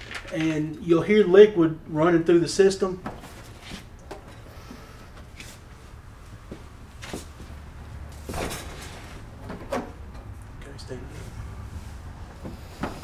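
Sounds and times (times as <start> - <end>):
refrigerator knocks and creaks: 8.3 - 10.1.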